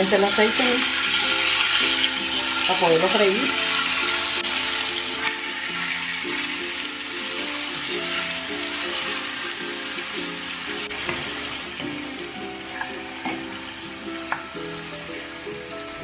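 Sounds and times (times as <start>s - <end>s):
background music: 0.0s - 16.0s
chicken sizzling in oil: 0.0s - 16.0s
wooden spoon knocking on pan: 11.0s - 11.4s.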